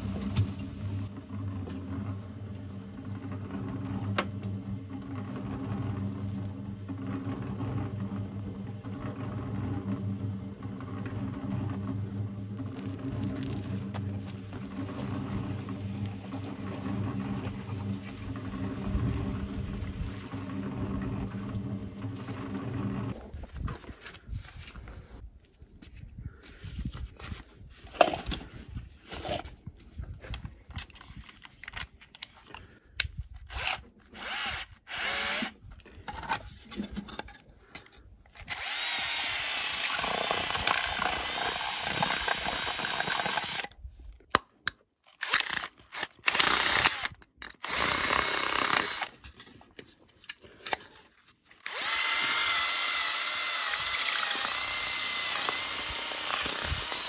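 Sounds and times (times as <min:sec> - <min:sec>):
cordless drill running: 0:33.4 - 0:35.6, 0:38.4 - 0:43.7, 0:45.2 - 0:49.2, 0:51.6 - 0:57.0
drill bit whine: 0:33.5 - 0:35.5, 0:38.5 - 0:43.7, 0:45.2 - 0:49.1, 0:51.6 - 0:57.0.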